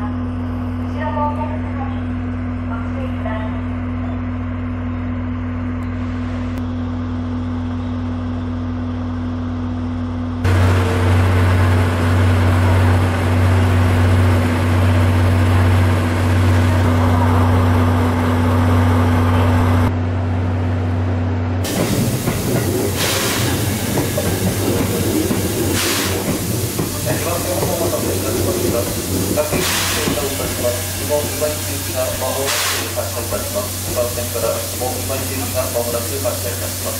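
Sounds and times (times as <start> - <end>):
locomotive engine idling: 10.4 - 19.9, 21.6 - 36.9
steam hissing: 21.7 - 36.9.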